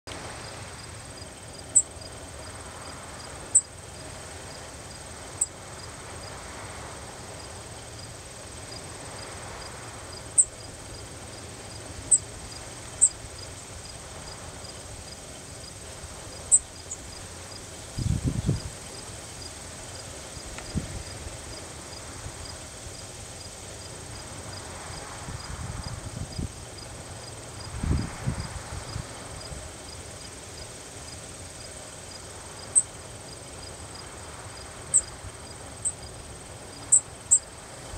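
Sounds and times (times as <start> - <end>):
crickets chirping: 0.1 - 37.9
songbird call notes: 16.4 - 17.0, 36.8 - 37.5.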